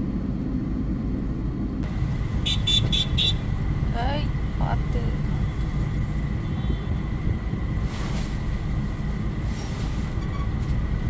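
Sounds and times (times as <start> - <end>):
engines idling: 0.0 - 11.0
road traffic rumble: 0.0 - 11.0.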